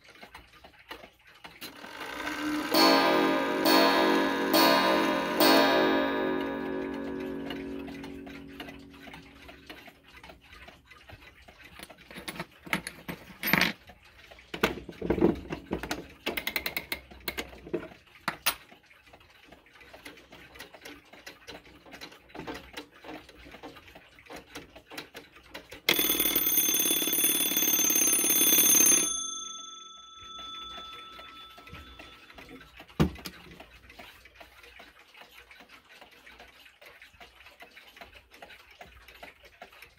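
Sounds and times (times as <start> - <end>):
clock ticking and clicking: 0.0 - 12.9, 13.8 - 39.9
alarm bell ringing: 2.0 - 9.8, 25.9 - 32.6
clock gong strike: 2.4 - 9.7.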